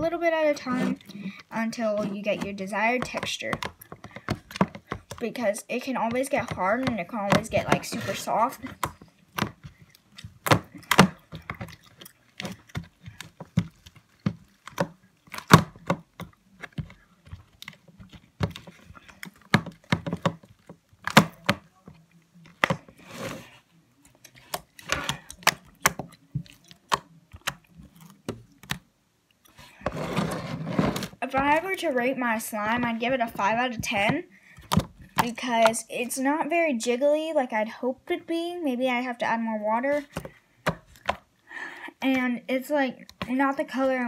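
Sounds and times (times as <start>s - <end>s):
slime squishes: 0.0s - 30.0s.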